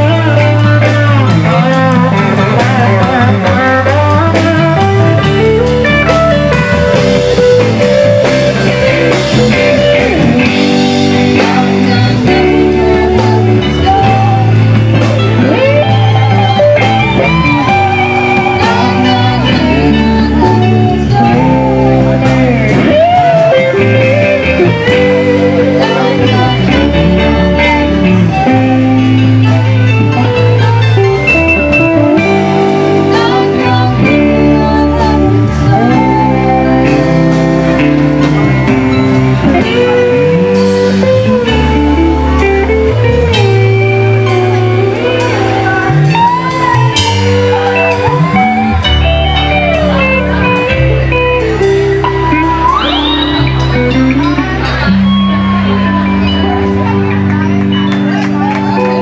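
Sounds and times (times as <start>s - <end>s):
drums and cymbals: 0.0s - 55.7s
electric guitar: 0.0s - 59.0s
person singing: 0.0s - 59.0s.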